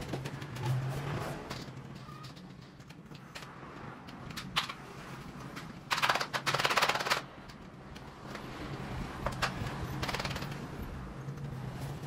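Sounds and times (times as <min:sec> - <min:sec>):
rapid mechanical rattle: 0:05.9 - 0:07.4, 0:09.3 - 0:10.8.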